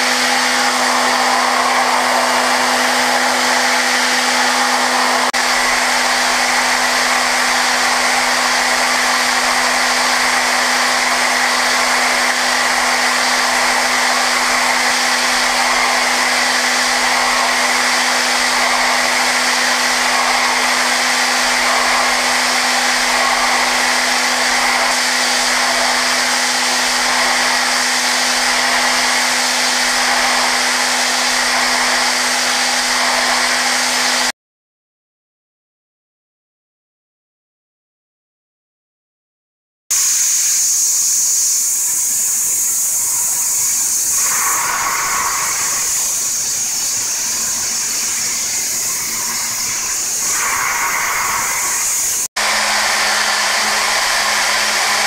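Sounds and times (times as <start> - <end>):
loud milling hiss: 0.0 - 34.3, 39.9 - 55.0
machine spindle humming: 0.0 - 34.3, 39.9 - 55.0.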